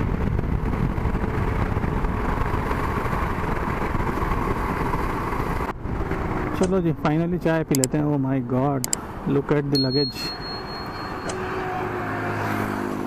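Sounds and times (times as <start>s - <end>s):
wind noise: 0.0s - 8.0s.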